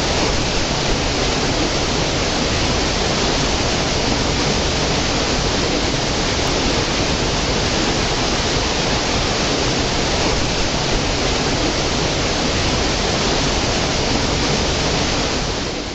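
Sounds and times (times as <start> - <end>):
stream rushing over rocks: 0.0 - 15.9.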